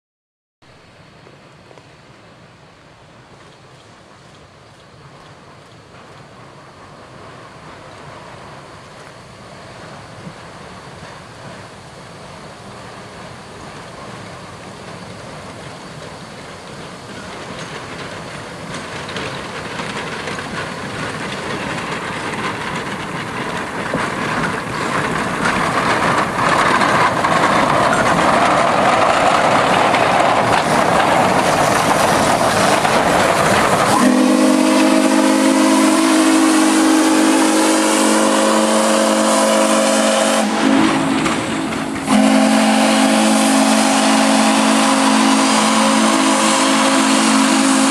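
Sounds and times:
steam locomotive exhaust and hiss: 0:00.7 - 0:47.9
steam whistle blast: 0:33.9 - 0:41.3, 0:42.0 - 0:47.9.

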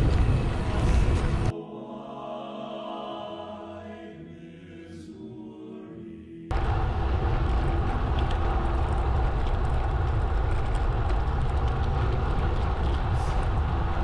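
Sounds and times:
low rumble: 0:00.0 - 0:01.5, 0:06.5 - 0:14.0
wind buffeting microphone: 0:00.0 - 0:01.5, 0:06.5 - 0:14.0.

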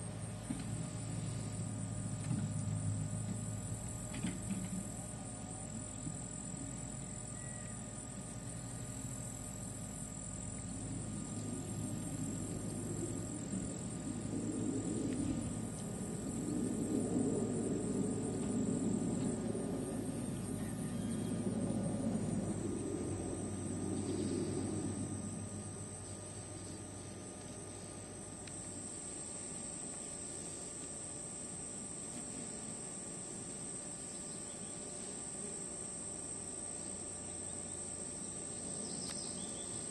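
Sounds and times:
high-pitched insect chorus: 0:00.0 - 0:39.9
low rumbling noise: 0:10.7 - 0:26.2.

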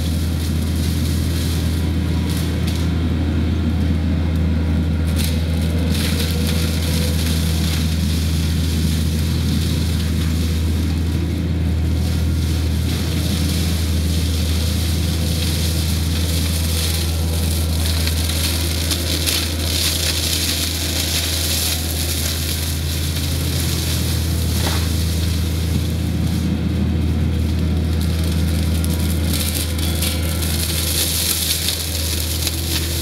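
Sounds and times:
woody stems crackling and snapping: 0:00.0 - 0:03.0, 0:04.3 - 0:33.0
loader engine droning: 0:00.0 - 0:33.0.

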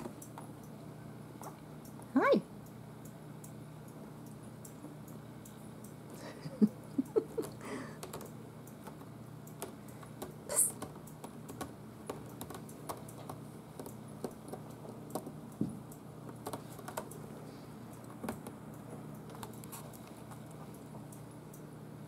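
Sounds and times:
kitten claws scrabbling on wood: 0:16.3 - 0:17.2.

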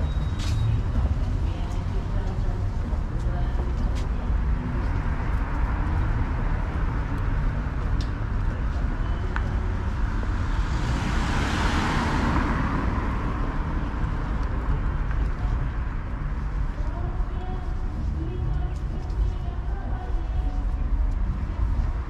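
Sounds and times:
low traffic rumble: 0:00.0 - 0:22.0
car passing close: 0:09.8 - 0:15.0.

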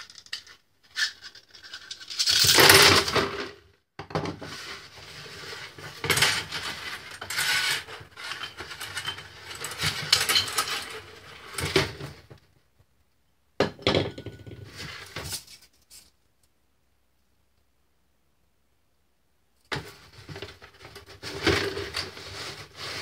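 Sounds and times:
metal spring coils scraping and clinking: 0:05.2 - 0:11.8.

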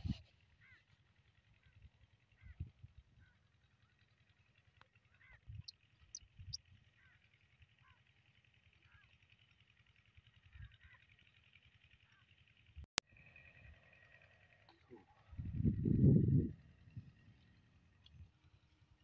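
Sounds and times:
distant bird calls: 0:00.6 - 0:09.2.

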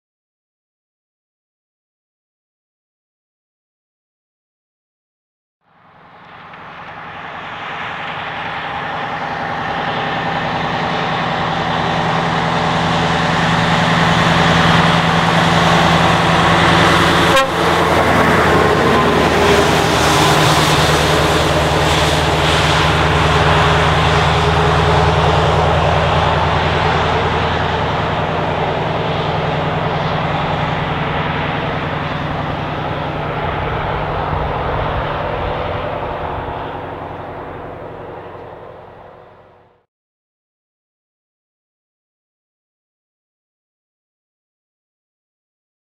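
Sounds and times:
diesel truck driving past: 0:05.6 - 0:39.9.

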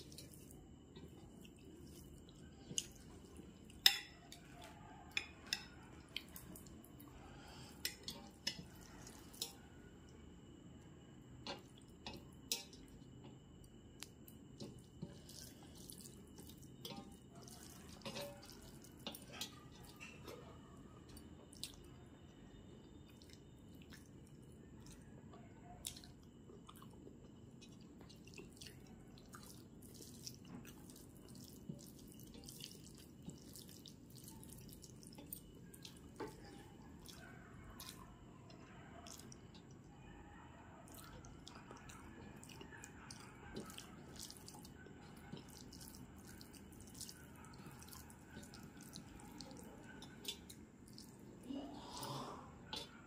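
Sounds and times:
fingers squishing rice on plate: 0:14.0 - 0:21.9, 0:27.6 - 0:39.8, 0:40.8 - 0:51.3
mouth chewing clicks and smacks: 0:21.2 - 0:21.9, 0:25.8 - 0:30.6, 0:40.9 - 0:51.3.

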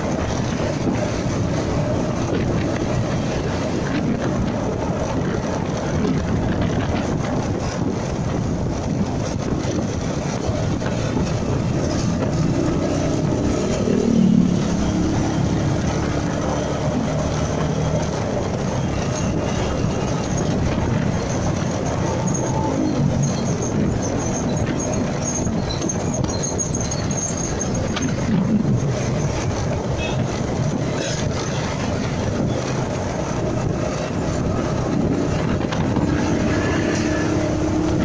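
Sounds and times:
road noise: 0:00.0 - 0:38.0
motorcycle engine: 0:07.9 - 0:25.8, 0:27.5 - 0:38.0.

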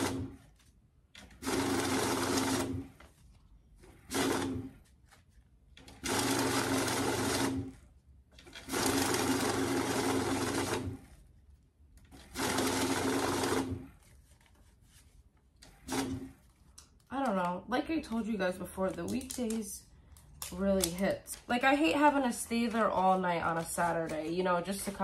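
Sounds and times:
banknote counter whirring: 0:00.0 - 0:00.4, 0:01.2 - 0:03.0, 0:03.9 - 0:04.8, 0:05.8 - 0:07.8, 0:08.4 - 0:11.2, 0:12.1 - 0:14.0.

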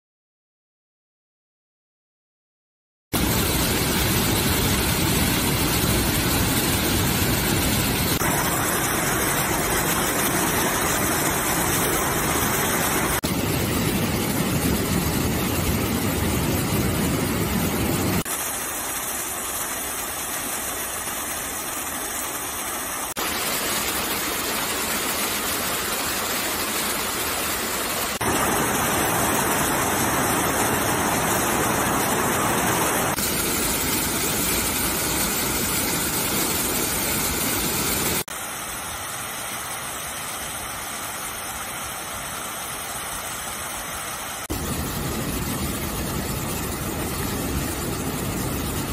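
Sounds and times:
waterfall rushing: 0:03.2 - 0:19.0, 0:20.9 - 0:38.3.

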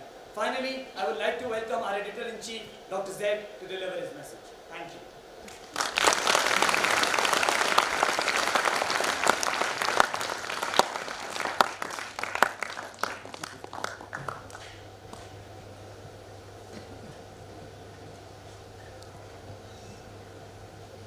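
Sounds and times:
audience applauding in a hall: 0:05.5 - 0:15.3.

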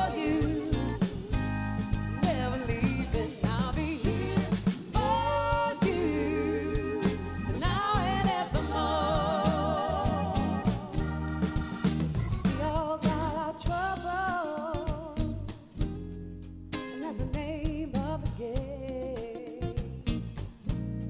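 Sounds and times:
woman singing with vibrato: 0:00.0 - 0:01.4, 0:02.2 - 0:11.0, 0:12.6 - 0:15.4
keyboard: 0:00.0 - 0:18.4
drum kit: 0:00.0 - 0:21.0
electric bass: 0:00.0 - 0:21.0
electric guitar: 0:00.0 - 0:21.0.

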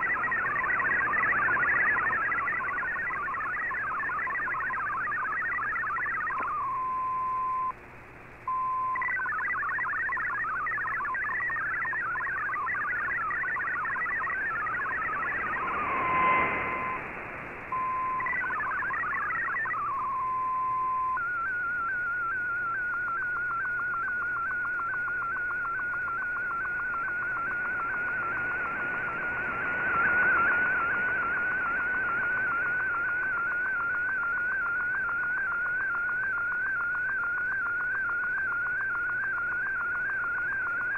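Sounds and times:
continuous warbling tone: 0:00.0 - 0:40.9
rapidly hopping electronic tones: 0:00.0 - 0:40.9.

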